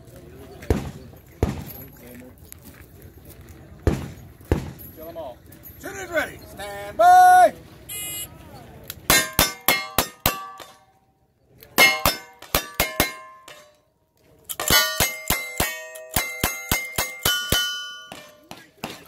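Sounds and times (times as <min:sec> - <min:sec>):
steel plates ringing: 0:09.1 - 0:11.0, 0:11.8 - 0:13.8, 0:14.5 - 0:18.8.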